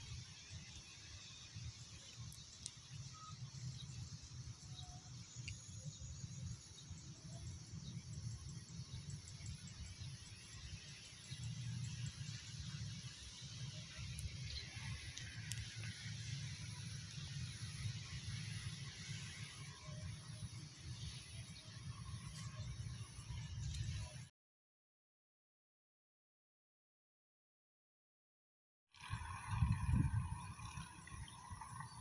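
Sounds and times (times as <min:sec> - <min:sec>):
faint clicks: 0:02.0 - 0:04.0, 0:05.3 - 0:05.7, 0:13.8 - 0:17.8
wind rumble on microphone: 0:29.0 - 0:32.0.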